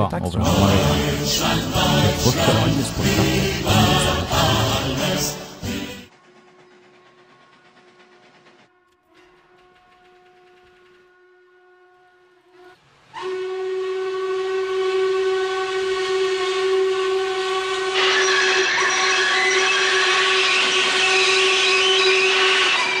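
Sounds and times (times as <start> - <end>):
steam hissing: 0.6 - 8.6, 12.8 - 23.0
steam locomotive whistle blast: 8.8 - 23.0.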